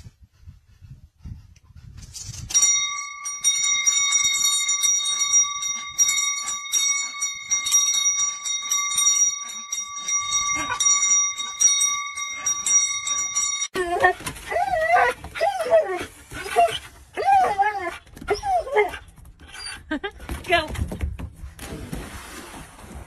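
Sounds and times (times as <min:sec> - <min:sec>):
metal door bell ringing: 0:02.5 - 0:13.8.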